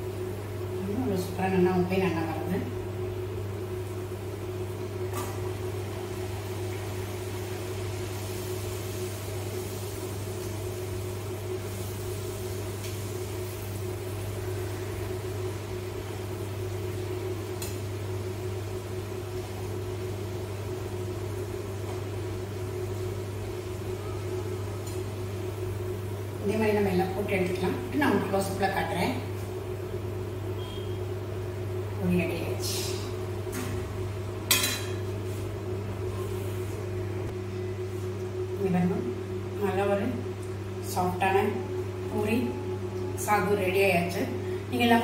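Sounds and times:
food frying in hot oil: 0:00.0 - 0:35.6
low machine hum: 0:00.0 - 0:45.0.

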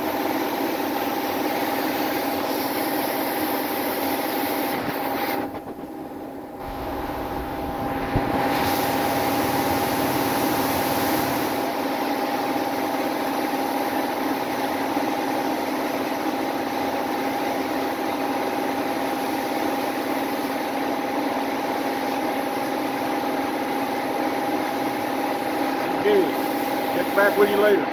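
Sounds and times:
spray gun hissing: 0:01.0 - 0:05.4, 0:06.6 - 0:11.7, 0:19.0 - 0:20.7, 0:24.7 - 0:27.8
machine hum: 0:04.7 - 0:12.0.

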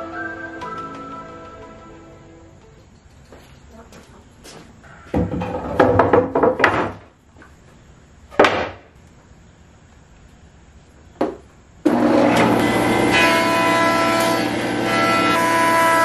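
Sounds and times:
wooden boards knocking: 0:05.1 - 0:07.1, 0:08.4 - 0:08.9.

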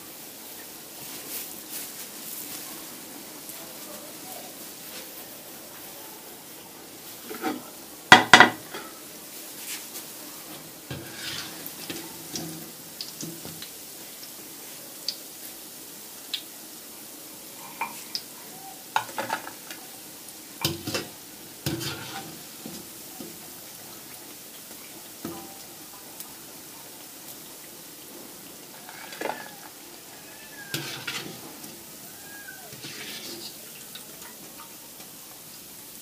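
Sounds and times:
food sizzling in oil: 0:00.0 - 0:36.0.

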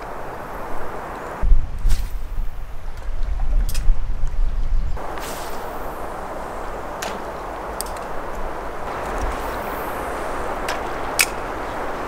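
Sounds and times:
creek rushing: 0:05.0 - 0:12.0.

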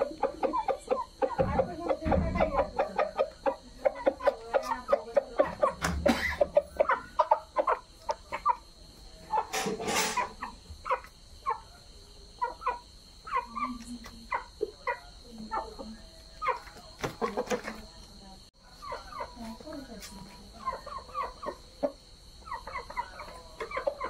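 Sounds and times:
chickens clucking: 0:00.0 - 0:24.0.

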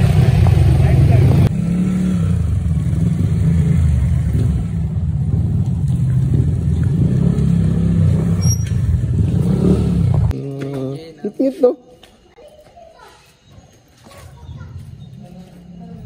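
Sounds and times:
motorcycle engine rumble: 0:00.0 - 0:11.0.

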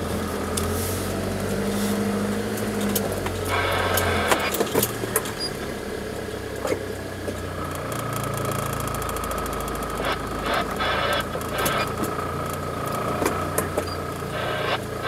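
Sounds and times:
vehicle engine running: 0:00.0 - 0:15.0
faint steady whine: 0:07.6 - 0:15.0.

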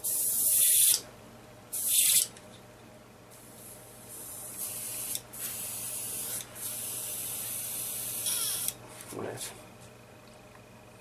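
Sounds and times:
airbrush hissing: 0:03.4 - 0:08.7.

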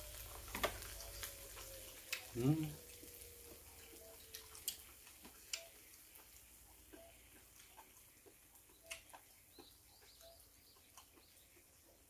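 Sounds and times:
faint high chirps: 0:00.0 - 0:04.8, 0:05.5 - 0:06.1, 0:06.9 - 0:07.9, 0:08.6 - 0:12.0
mouth clicks from chewing: 0:04.0 - 0:12.0.

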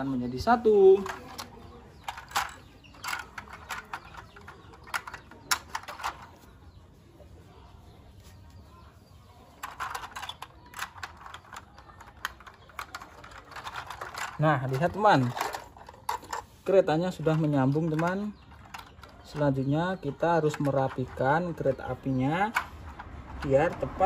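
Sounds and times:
plastic toy train pieces clicking: 0:00.9 - 0:06.3, 0:09.5 - 0:19.6, 0:20.4 - 0:21.7.

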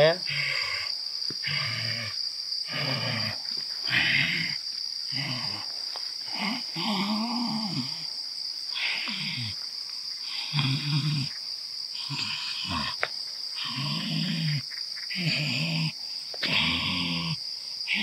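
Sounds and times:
man growling and grunting: 0:00.0 - 0:05.7, 0:06.3 - 0:08.1, 0:12.0 - 0:13.0, 0:13.6 - 0:18.0
crickets chirping: 0:00.0 - 0:18.0.

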